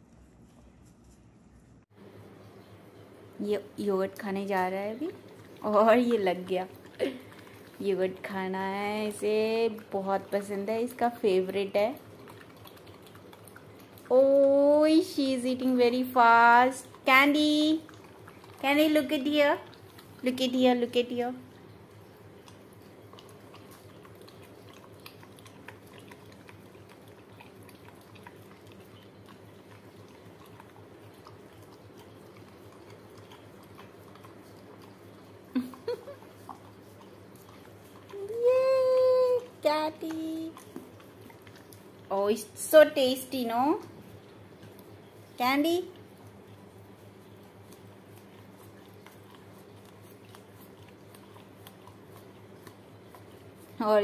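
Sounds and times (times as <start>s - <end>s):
steady low hum: 0.0s - 54.0s
dog licking and lapping: 2.4s - 54.0s.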